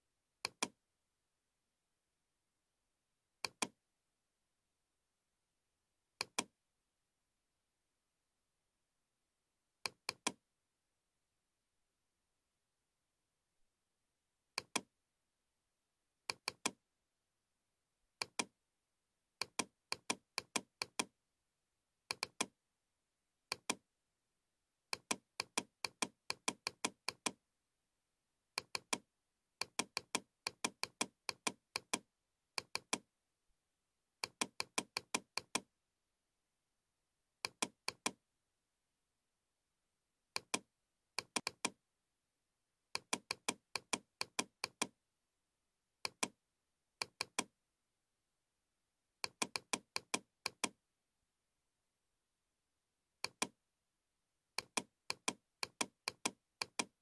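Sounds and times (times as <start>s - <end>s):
computer mouse clicks: 0.4s - 0.8s, 3.4s - 3.8s, 6.2s - 6.5s, 9.8s - 10.4s, 14.6s - 14.9s, 16.3s - 16.8s, 18.2s - 18.5s, 19.4s - 21.1s, 22.1s - 22.6s, 23.5s - 23.8s, 24.9s - 27.4s, 28.6s - 29.0s, 29.6s - 33.1s, 34.2s - 35.7s, 37.4s - 38.2s, 40.3s - 41.8s, 42.9s - 45.0s, 46.0s - 46.4s, 47.0s - 47.5s, 49.2s - 50.8s, 53.2s - 53.6s, 54.6s - 57.0s.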